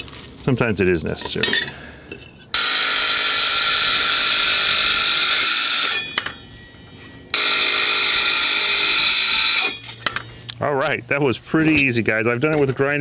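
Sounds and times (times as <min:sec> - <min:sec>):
circular saw cutting metal: 0:02.6 - 0:06.6, 0:07.3 - 0:10.1.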